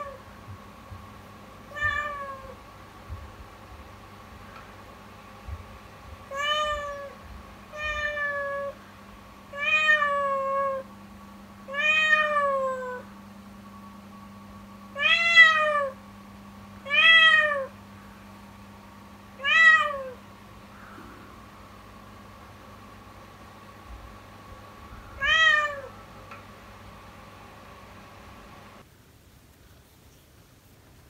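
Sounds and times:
kitten meowing: 1.7s - 2.6s, 6.3s - 7.2s, 7.8s - 8.8s, 25.2s - 25.9s.

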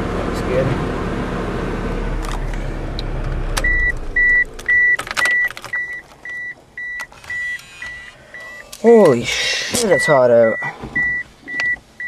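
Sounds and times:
car engine running: 0.0s - 10.2s
car door and controls clicking: 2.2s - 9.1s, 10.8s - 11.9s
car warning chime beeping: 3.4s - 12.0s.

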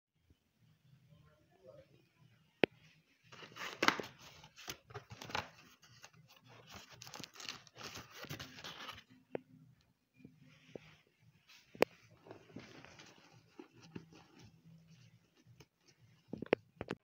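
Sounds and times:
packaging rustling and scraping: 3.3s - 9.1s, 11.5s - 16.5s.

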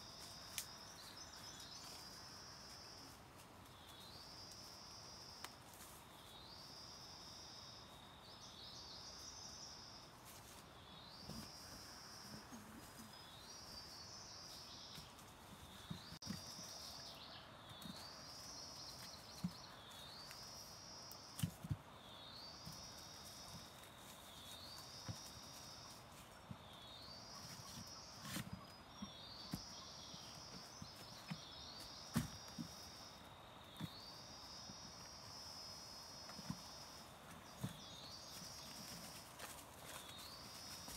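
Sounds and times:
rustles in dry leaf litter: 37.0s - 40.9s.

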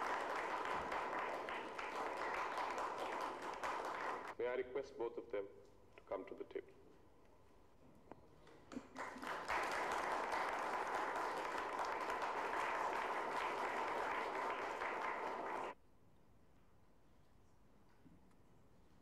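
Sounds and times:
audience applauding: 0.0s - 4.4s, 8.7s - 15.8s.

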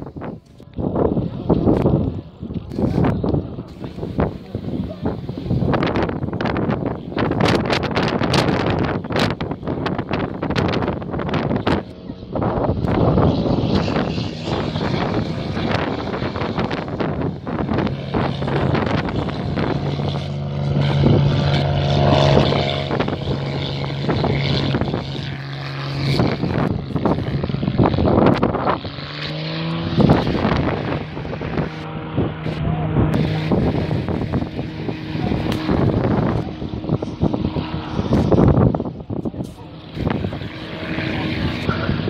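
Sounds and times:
propeller aircraft engine drone: 0.0s - 42.0s.

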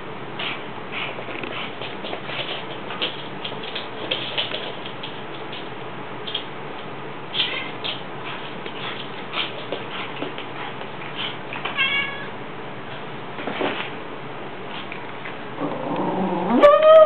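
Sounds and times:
light taps and rustles: 1.3s - 11.8s
cat meowing: 7.3s - 7.8s, 11.7s - 12.4s.

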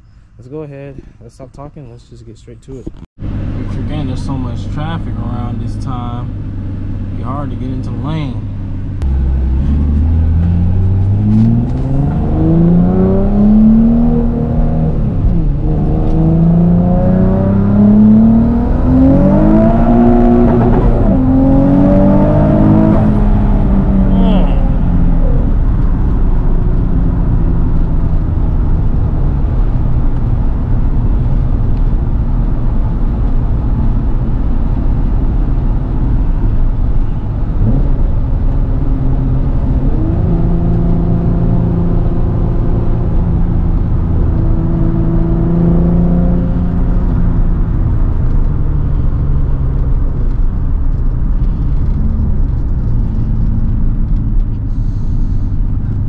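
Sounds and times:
car engine driving: 0.0s - 56.0s
road noise: 0.0s - 56.0s.

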